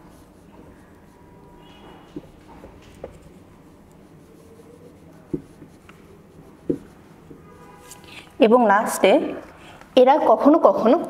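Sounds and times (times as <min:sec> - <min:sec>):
marker rubbing on whiteboard: 0:00.0 - 0:08.4
marker tip tapping board: 0:05.3 - 0:06.0, 0:06.6 - 0:07.4.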